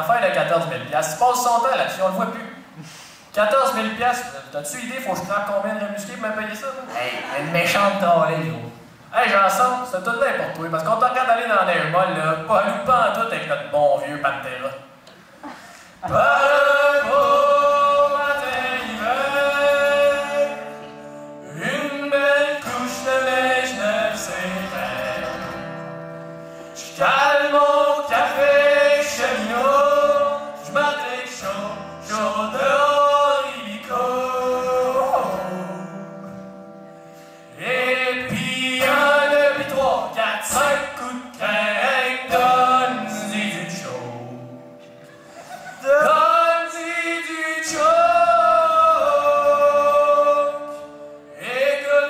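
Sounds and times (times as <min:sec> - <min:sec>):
men singing together: 0:16.0 - 0:20.8, 0:21.5 - 0:25.6, 0:26.9 - 0:35.9, 0:37.6 - 0:44.5, 0:45.6 - 0:52.0
strummed acoustic guitar: 0:16.0 - 0:52.0.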